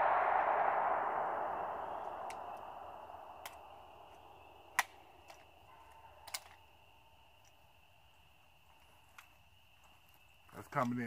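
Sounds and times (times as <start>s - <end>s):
rush of noise: 0.0s - 5.5s.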